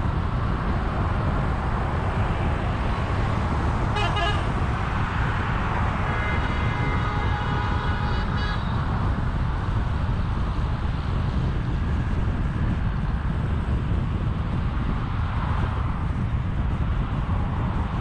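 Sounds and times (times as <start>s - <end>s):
road and wind rumble: 0.0s - 18.0s
vehicle horn: 3.9s - 4.6s, 6.1s - 8.8s.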